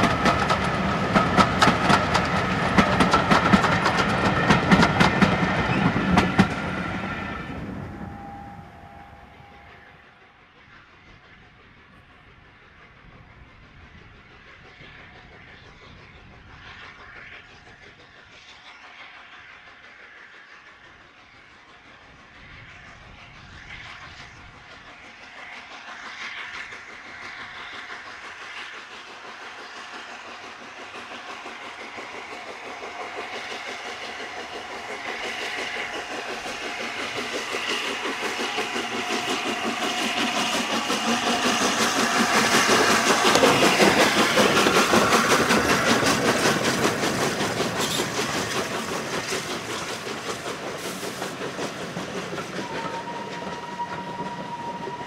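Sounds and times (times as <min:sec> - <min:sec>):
coaches clattering over rail joints: 0:00.0 - 0:06.7, 0:35.7 - 0:55.0
steam locomotive exhaust beats: 0:00.0 - 0:55.0.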